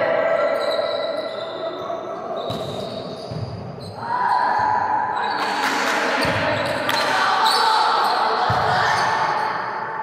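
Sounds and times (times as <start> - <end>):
volleyball slaps: 5.6 - 7.3.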